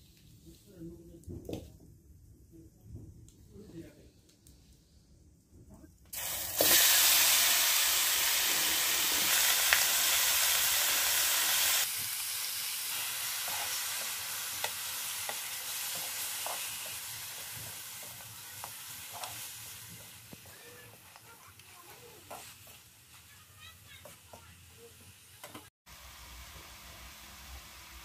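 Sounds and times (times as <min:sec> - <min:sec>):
food sizzling in pan: 0:06.1 - 0:28.0.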